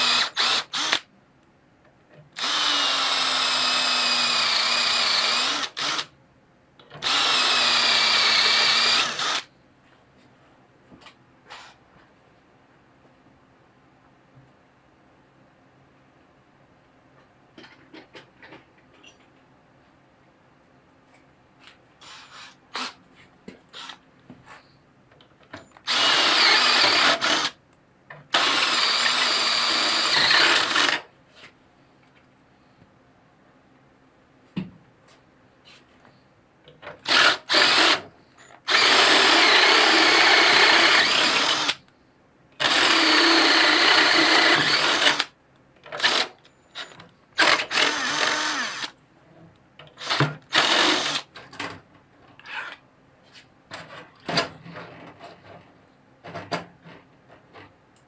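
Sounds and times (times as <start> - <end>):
cordless drill boring into steel: 0.0 - 1.0, 2.4 - 6.1, 7.0 - 9.5, 25.9 - 27.6, 28.3 - 31.0, 37.0 - 38.0, 38.7 - 41.8, 42.6 - 45.3, 46.0 - 48.9, 50.0 - 51.3.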